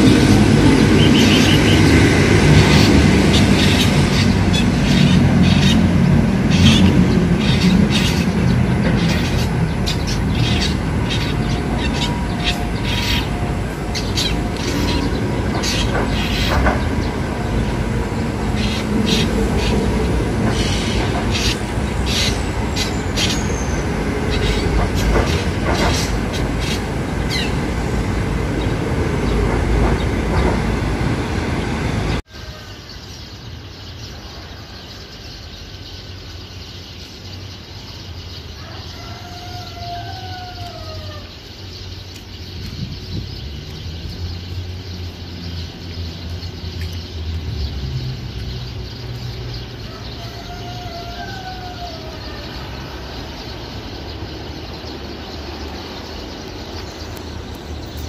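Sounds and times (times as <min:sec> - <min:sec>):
loud steady background noise: 0:00.0 - 0:38.6.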